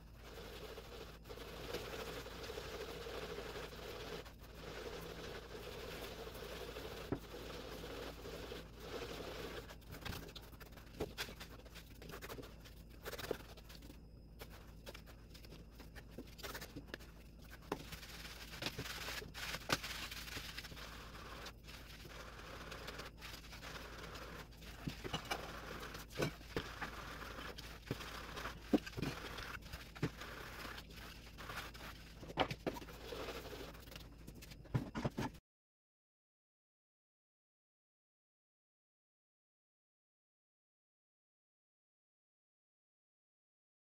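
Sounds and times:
hands rubbing gritty grains: 0:14.4 - 0:32.2
grains shaken through sieve: 0:17.8 - 0:32.2.

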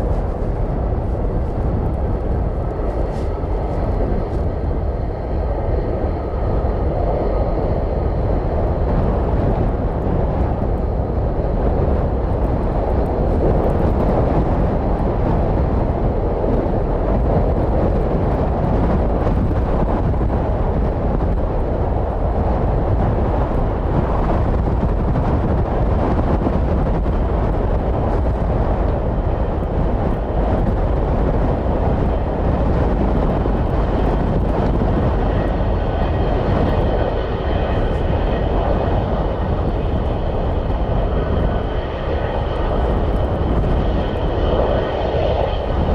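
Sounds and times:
high engine whine: 0:00.0 - 0:45.9
jet engines running: 0:00.0 - 0:45.9
wind rumble on microphone: 0:00.0 - 0:45.9.

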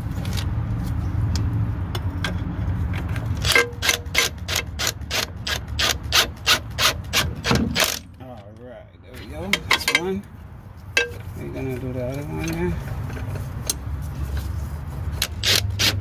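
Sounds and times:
ratcheting wrench clicking: 0:03.4 - 0:08.1, 0:15.2 - 0:16.0.

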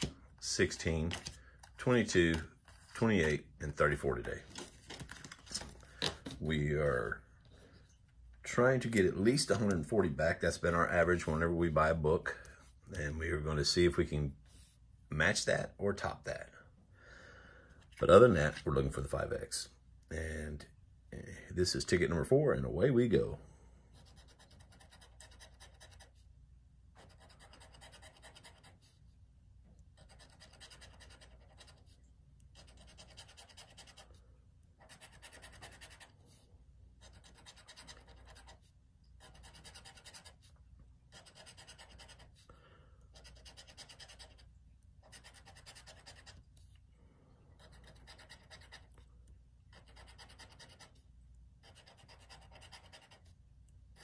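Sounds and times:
scratching lottery ticket: 0:23.9 - 0:26.3, 0:26.9 - 0:29.1, 0:29.8 - 0:34.2, 0:34.8 - 0:42.5, 0:43.1 - 0:46.8, 0:47.6 - 0:49.1, 0:49.7 - 0:54.0.

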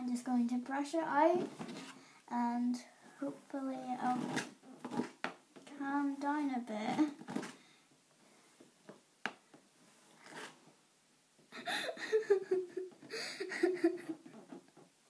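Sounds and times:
girl laughing in breathy bursts: 0:11.5 - 0:14.5.

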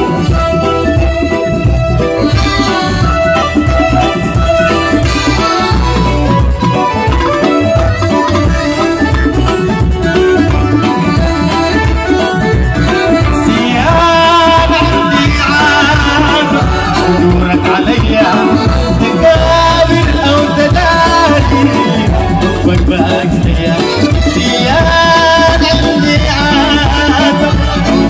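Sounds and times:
bass: 0:00.0 - 0:28.0
electronic keyboard melody: 0:00.0 - 0:28.0
hand drum rhythm: 0:00.0 - 0:28.0
man singing: 0:12.8 - 0:28.0.

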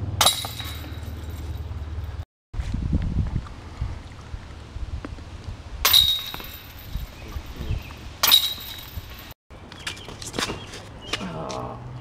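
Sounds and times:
disc hitting metal chains: 0:00.2 - 0:01.6, 0:05.9 - 0:06.9, 0:08.2 - 0:09.3.

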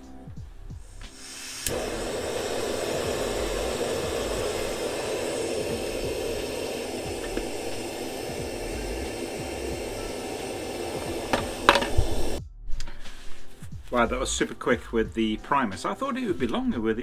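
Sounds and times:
gas burner hissing: 0:00.7 - 0:12.4
stove igniter click: 0:01.0 - 0:12.4.

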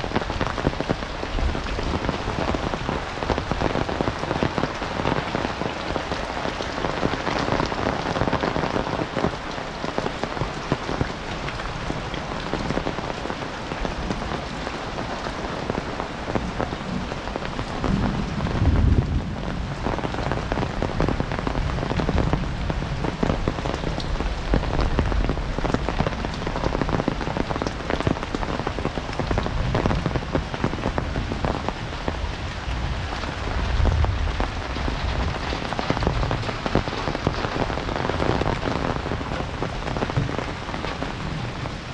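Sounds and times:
heavy rain falling: 0:00.0 - 0:41.9.

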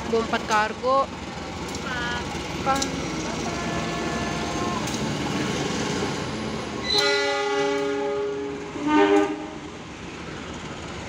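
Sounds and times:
freight train running on track: 0:00.0 - 0:11.0
train horn blasts: 0:06.8 - 0:09.6.

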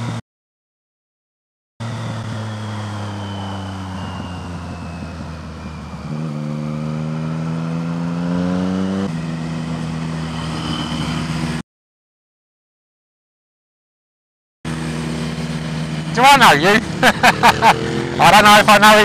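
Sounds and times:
motorcycle engine accelerating: 0:01.8 - 0:11.6, 0:14.7 - 0:19.0.

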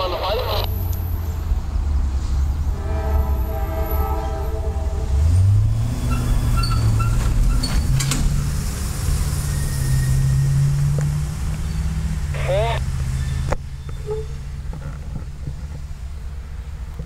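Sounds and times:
low engine drone: 0:00.0 - 0:01.4, 0:08.0 - 0:17.0
train rumble: 0:00.0 - 0:17.0
train air horn: 0:02.7 - 0:05.6.

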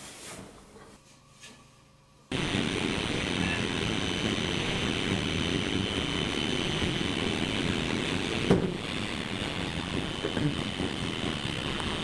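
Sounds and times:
television static hiss: 0:00.0 - 0:12.0
faint high whine: 0:02.0 - 0:12.0.

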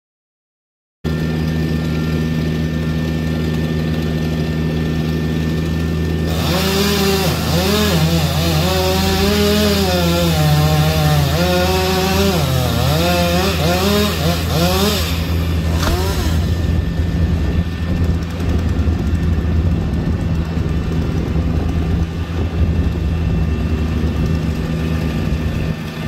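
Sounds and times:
chainsaw cutting wood: 0:01.1 - 0:19.4.

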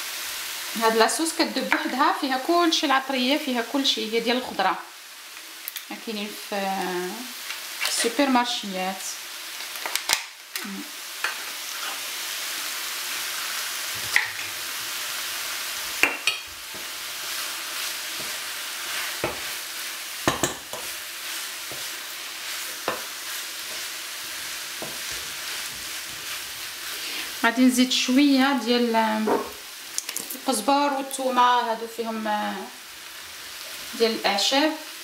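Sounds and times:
rice sizzling in frying pan: 0:00.0 - 0:35.0
wooden spoon knocking pan: 0:20.2 - 0:20.8.

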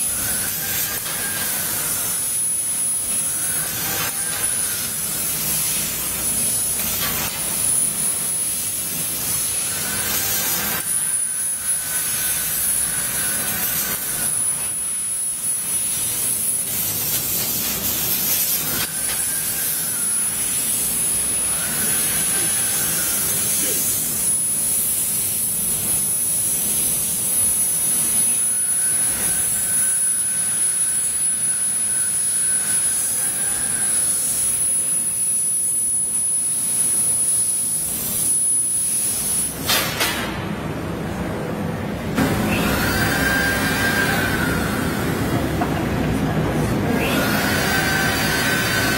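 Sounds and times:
laser cutter high whine: 0:00.0 - 0:40.3, 0:42.2 - 0:48.9
faint machine tone: 0:28.1 - 0:37.8.

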